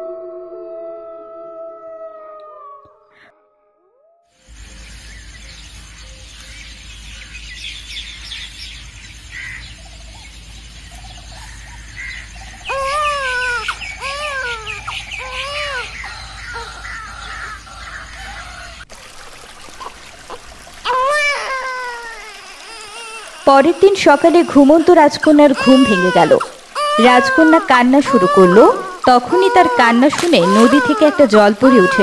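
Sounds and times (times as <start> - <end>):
small birds chirping faintly: 4.4 - 32.0.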